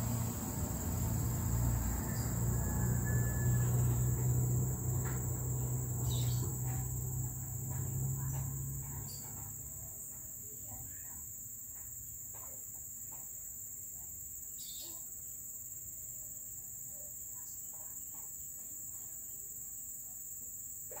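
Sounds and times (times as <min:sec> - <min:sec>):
insects shrilling: 0:00.0 - 0:09.6.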